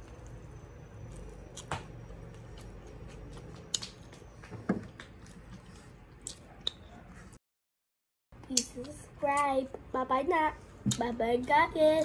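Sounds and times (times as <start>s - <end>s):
chewing with wet mouth clicks: 1.1s - 4.2s, 5.0s - 6.9s.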